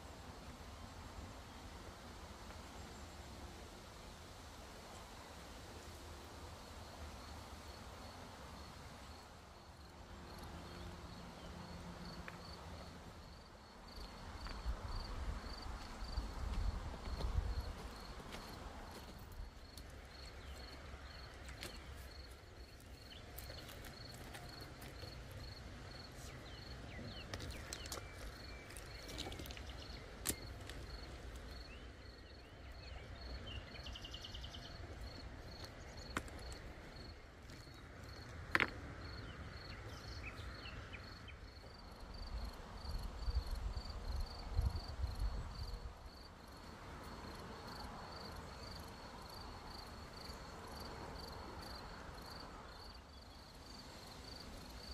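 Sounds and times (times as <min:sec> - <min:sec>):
cricket chirping: 0:08.5 - 0:54.9
river stones clicking: 0:27.3 - 0:31.5.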